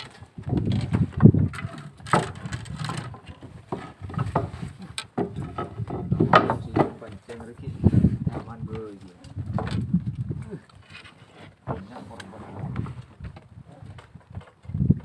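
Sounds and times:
wind buffeting microphone: 0:00.0 - 0:10.7, 0:11.6 - 0:15.0
short knocks: 0:02.1 - 0:07.5.

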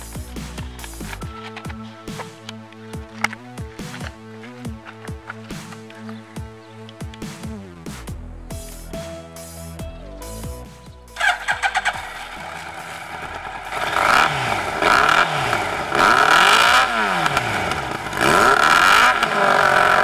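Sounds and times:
motorcycle engine revving: 0:00.0 - 0:09.0, 0:10.6 - 0:20.0
exhaust pops: 0:11.2 - 0:20.0.

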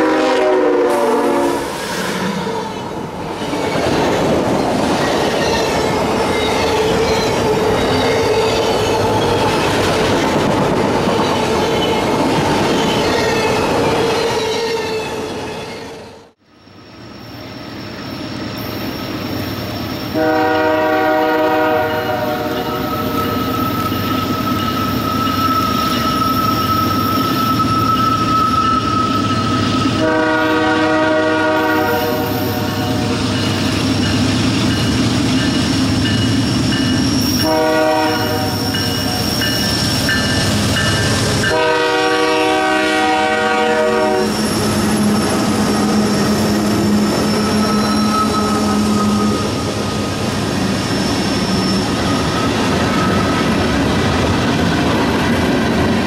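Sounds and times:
locomotive air horn blasts: 0:00.0 - 0:01.7, 0:20.1 - 0:22.9, 0:30.0 - 0:33.1, 0:37.4 - 0:38.7, 0:41.5 - 0:49.5
train wheels clicking: 0:32.1 - 0:37.6, 0:38.2 - 0:41.6.

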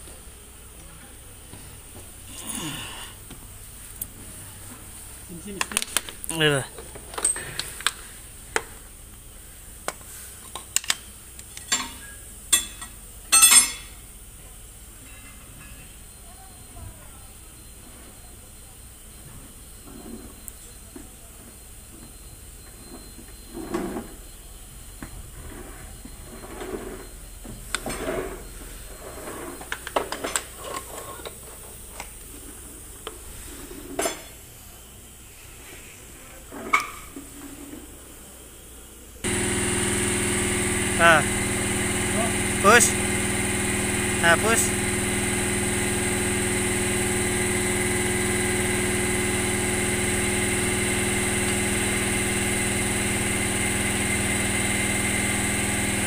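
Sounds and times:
metal tools clinking and knocking: 0:11.6 - 0:13.9.

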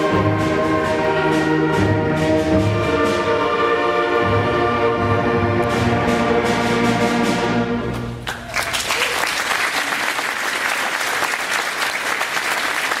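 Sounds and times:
audience applause: 0:08.2 - 0:13.0.

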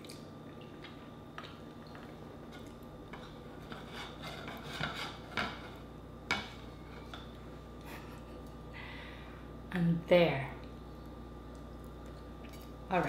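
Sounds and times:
soft rubbing and scraping: 0:03.6 - 0:05.8.

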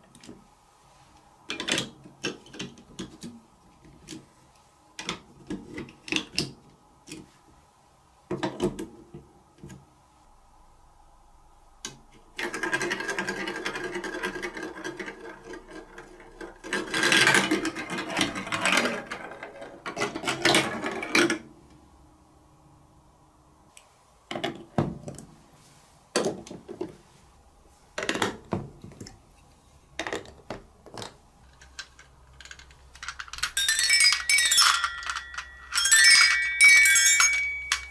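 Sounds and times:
plastic track pieces clicking: 0:11.9 - 0:21.4, 0:30.0 - 0:37.9
plastic ball rolling in marble run: 0:12.4 - 0:21.4, 0:30.0 - 0:37.9.

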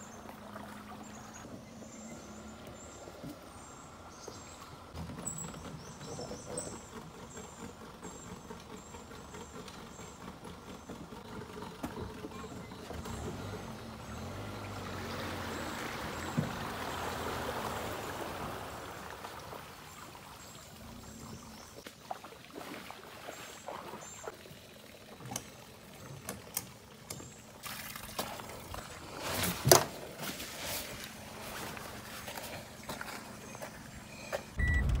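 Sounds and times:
water pouring off a boat: 0:22.0 - 0:33.5.

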